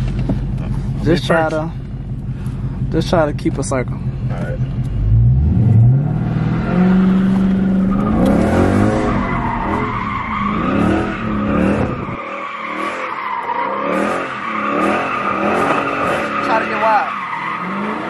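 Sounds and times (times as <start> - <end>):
car engine revving: 0.0 - 18.0
tyres squealing: 7.0 - 18.0.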